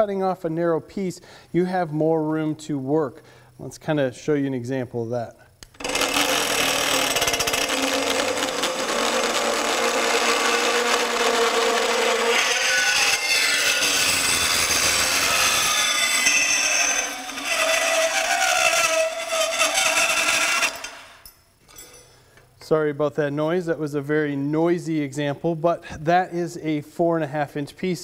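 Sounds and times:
band saw cutting metal: 5.8 - 21.2.

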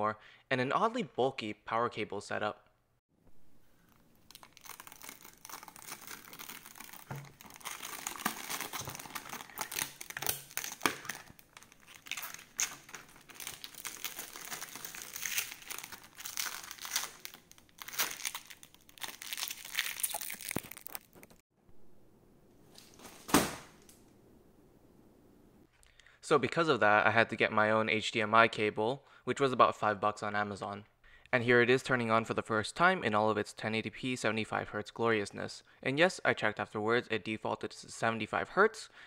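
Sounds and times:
plastic film crinkling: 3.7 - 21.4.

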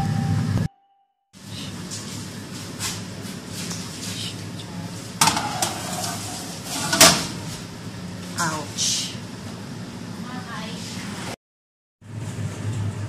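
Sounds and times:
metal tray clinking on oven rack: 5.2 - 7.4.

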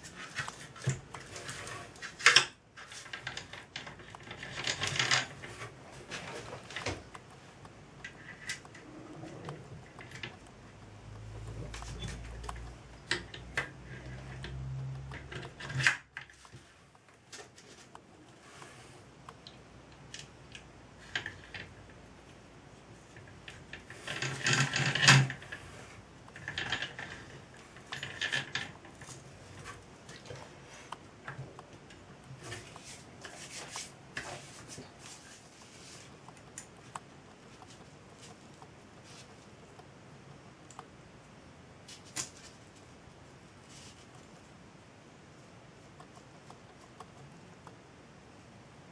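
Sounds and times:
rattling scrape: 0.0 - 7.0
metal parts and tools clicking: 0.2 - 6.9.

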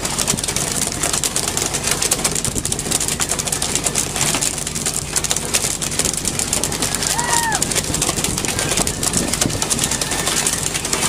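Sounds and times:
boat engine humming: 0.0 - 11.0
small crackles and clatter: 0.0 - 11.0
wind and sea rushing: 5.7 - 11.0.

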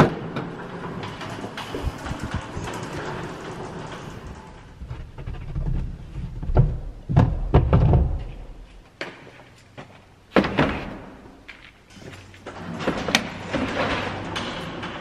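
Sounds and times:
low rumble of handling: 0.9 - 8.8
cases thudding and knocking: 4.8 - 8.8.

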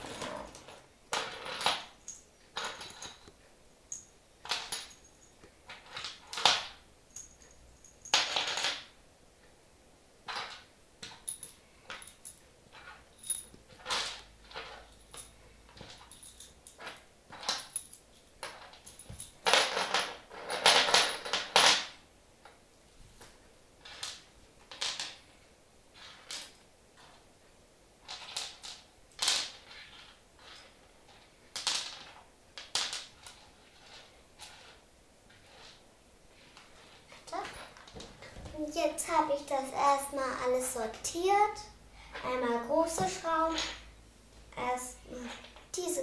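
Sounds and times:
metal screws clinking on wooden floor: 0.0 - 8.9, 10.3 - 22.6, 23.8 - 25.3, 26.0 - 27.2, 28.0 - 35.8, 36.5 - 38.2, 42.9 - 43.9.

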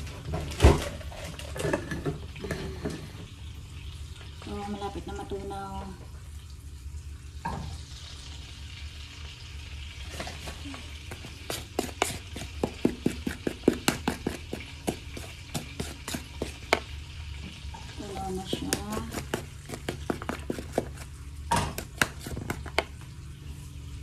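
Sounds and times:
butter sizzling in frying pan: 7.0 - 23.5
utensil knocking against bowl: 18.4 - 22.9.

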